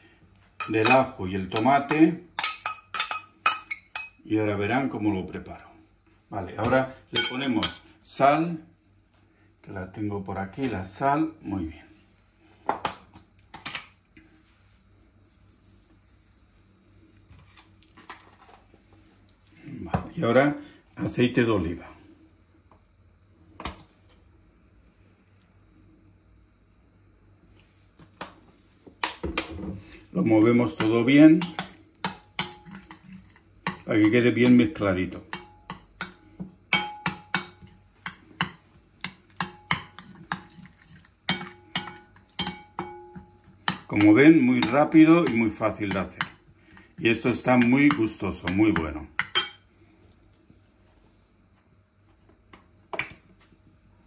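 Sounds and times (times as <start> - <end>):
utensil clinking against bowl: 0.6 - 4.2, 7.2 - 7.8, 30.7 - 46.4, 47.4 - 49.6.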